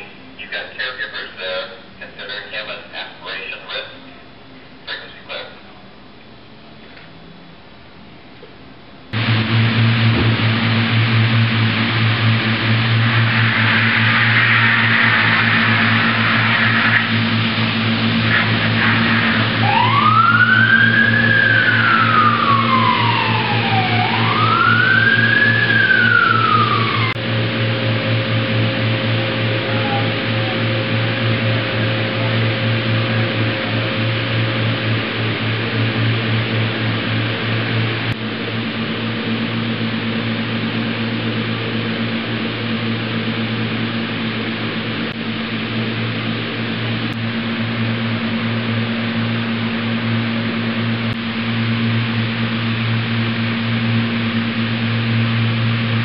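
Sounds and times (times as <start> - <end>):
machinery hum: 0.0 - 56.0
truck engine running: 9.1 - 56.0
rushing hiss: 9.2 - 19.7
fire truck siren wailing: 9.2 - 56.0.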